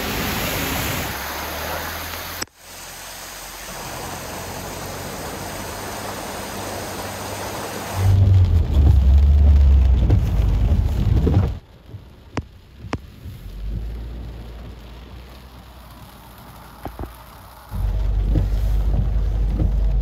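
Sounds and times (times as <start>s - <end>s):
vehicle engine hum: 0.0s - 20.0s
vehicles splashing through floodwater: 0.0s - 20.0s
heavy low rumble: 7.4s - 20.0s.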